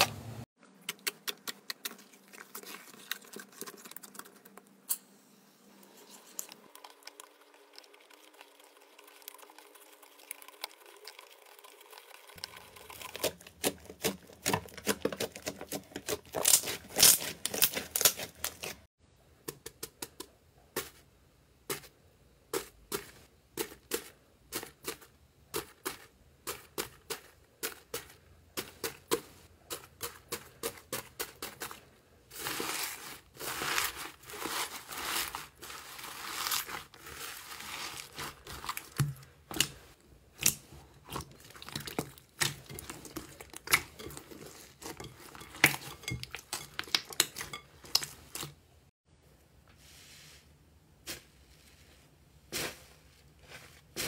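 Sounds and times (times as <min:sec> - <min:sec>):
crunchy slime crackling: 0:12.9 - 0:18.9, 0:29.8 - 0:48.5.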